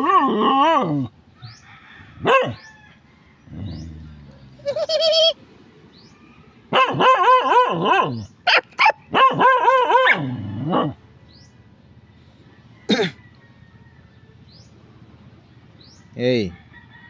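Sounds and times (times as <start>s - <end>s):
dog barking: 2.2s - 2.6s, 6.7s - 11.0s
dog yipping: 6.7s - 10.9s.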